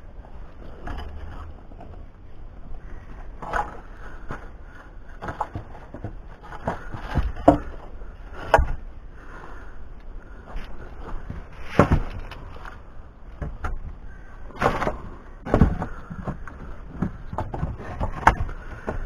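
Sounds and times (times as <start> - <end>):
knocks and rustles on stick wall: 2.9 - 8.8, 11.0 - 12.8, 13.4 - 19.0.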